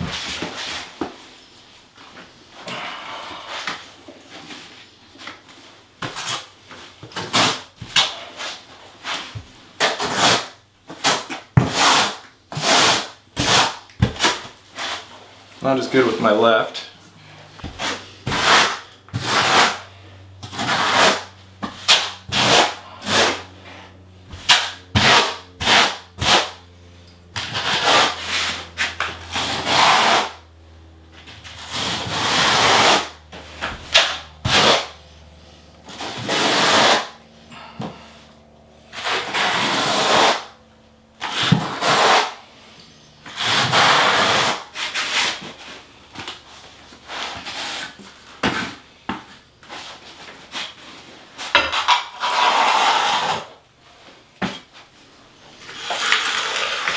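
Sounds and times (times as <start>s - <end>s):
trowel scraping mortar: 7.1s - 15.2s, 17.6s - 23.8s, 24.4s - 26.6s, 27.4s - 30.4s, 31.5s - 35.0s, 35.9s - 38.0s, 38.9s - 40.6s, 41.2s - 42.4s, 43.2s - 45.7s, 51.4s - 53.6s, 55.6s - 56.9s.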